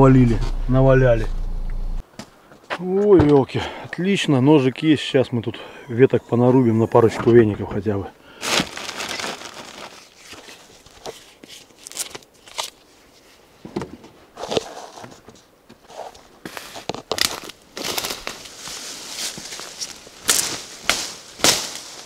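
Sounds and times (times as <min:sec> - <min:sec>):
leaves and branches rustling: 0:08.3 - 0:13.6, 0:14.3 - 0:22.0.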